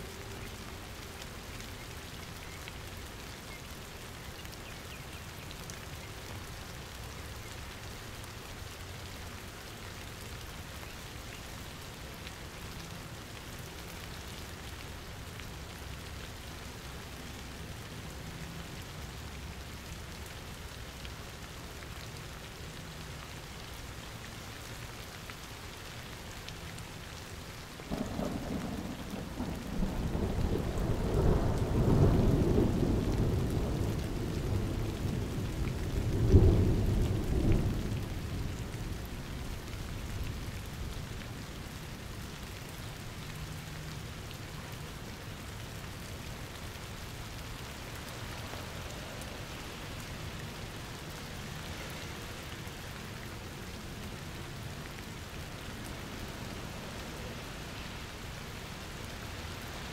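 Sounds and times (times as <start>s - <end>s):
steady rain falling: 0.0s - 59.9s
thunder rumbling: 27.9s - 38.9s.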